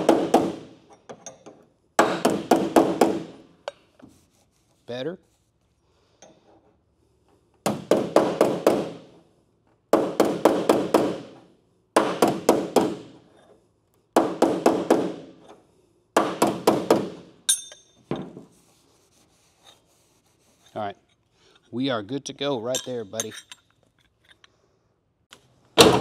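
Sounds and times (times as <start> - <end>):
high metallic ring: 17.5 - 18.1.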